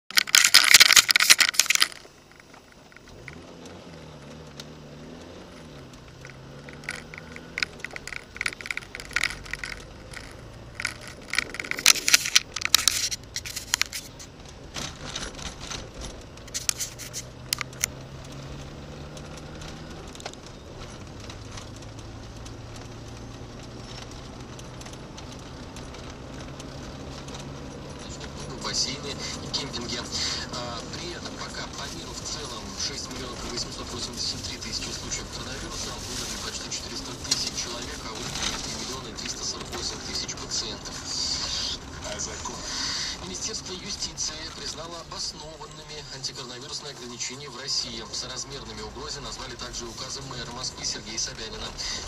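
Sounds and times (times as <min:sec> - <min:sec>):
clicking and clatter: 0:00.1 - 0:52.0
car engine hum from inside: 0:00.2 - 0:52.0
loud clattering: 0:05.6 - 0:17.9.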